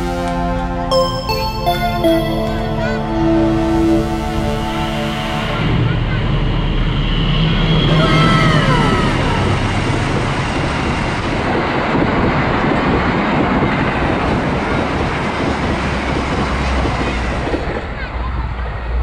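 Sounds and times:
falling pitch tones: 0:00.8 - 0:06.7
locomotive engine drone: 0:02.0 - 0:16.6.

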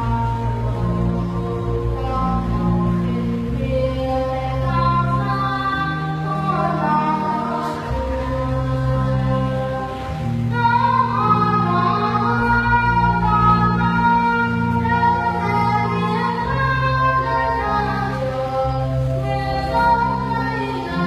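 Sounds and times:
instrumental accompaniment with bass notes: 0:00.0 - 0:21.0
women singing a hymn: 0:00.0 - 0:21.0.

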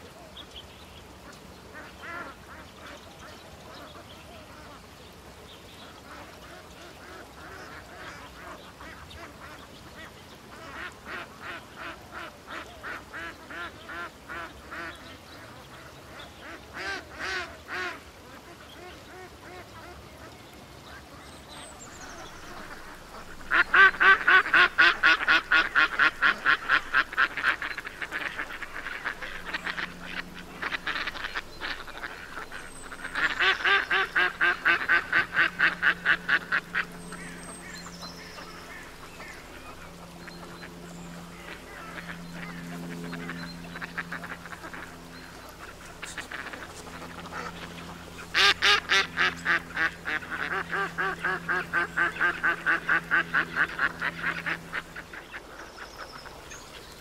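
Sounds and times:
ducks quacking: 0:01.7 - 0:04.8, 0:05.9 - 0:57.0.

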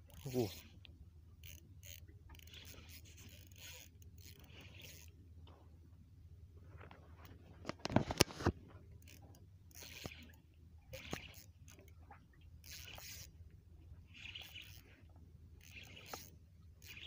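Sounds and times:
low steady hum: 0:00.0 - 0:17.0
fishing reel scraping and rustling: 0:00.1 - 0:00.8, 0:01.4 - 0:05.2, 0:06.7 - 0:12.0, 0:12.6 - 0:13.4, 0:14.0 - 0:17.0.

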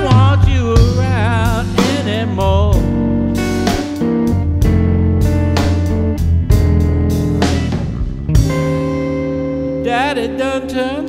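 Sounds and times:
drums and cymbal hits: 0:00.0 - 0:02.2, 0:03.4 - 0:09.1
bass: 0:00.0 - 0:11.0
blues guitar: 0:00.0 - 0:11.0.

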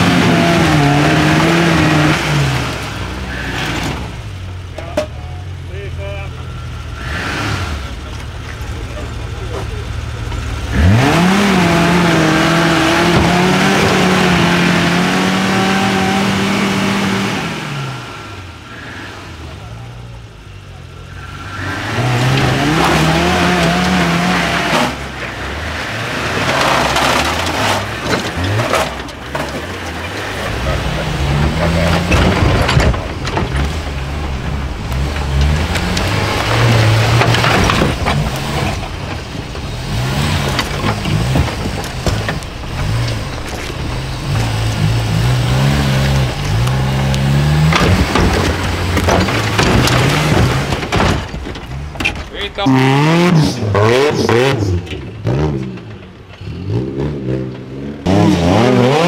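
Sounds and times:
off-road vehicle engine revving: 0:00.0 - 0:59.0
tyres scrabbling on rock: 0:26.2 - 0:52.6
sharp cracks and knocks: 0:31.4 - 0:52.6.

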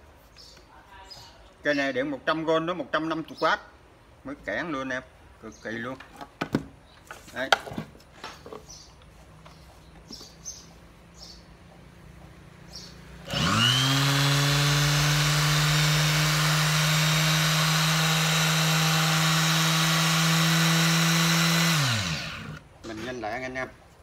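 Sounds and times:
electric sander humming and whining: 0:13.2 - 0:22.6.

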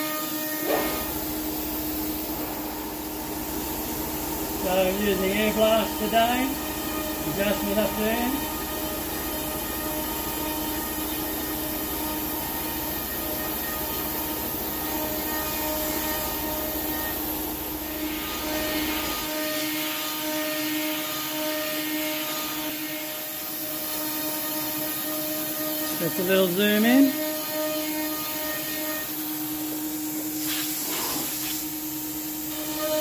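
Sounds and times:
compressed air hissing: 0:00.0 - 0:09.6, 0:10.2 - 0:33.0
router spindle cutting wood: 0:04.5 - 0:17.2, 0:17.8 - 0:29.2.

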